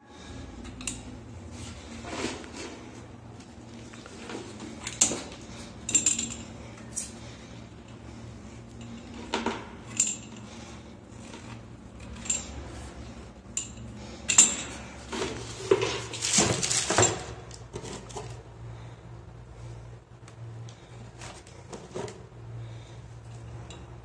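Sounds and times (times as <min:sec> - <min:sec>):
low steady hum: 0:00.0 - 0:24.0
metal clinks and taps: 0:04.8 - 0:06.6, 0:13.5 - 0:14.9.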